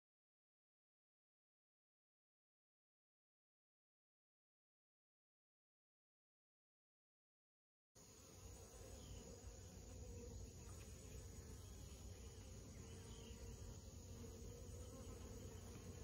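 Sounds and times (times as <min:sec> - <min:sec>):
honeybees buzzing: 0:08.0 - 0:16.0.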